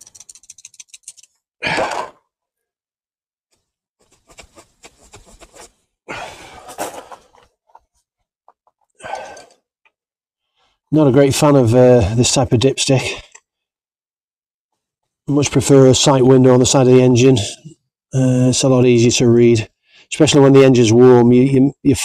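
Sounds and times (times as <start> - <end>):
faint scratching: 4.0 - 5.8
breaths on microphone: 6.1 - 7.5, 8.9 - 9.7
handling noises: 6.4 - 9.5.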